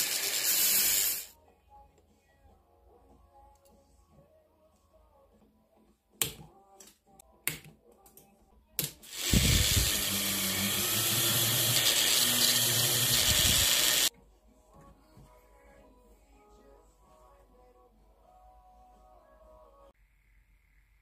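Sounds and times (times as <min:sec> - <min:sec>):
rotary tool polishing hiss: 0:00.0 - 0:01.3, 0:09.1 - 0:14.1.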